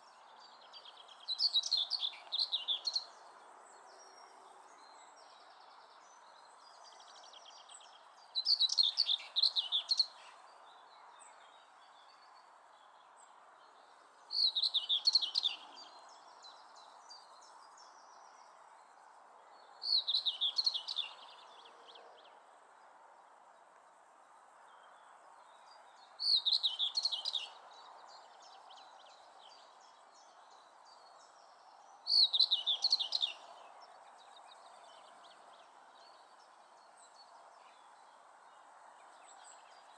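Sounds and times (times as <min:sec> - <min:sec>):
bird singing: 0:00.0 - 0:23.3, 0:24.6 - 0:39.9
faint background noise: 0:00.0 - 0:39.9.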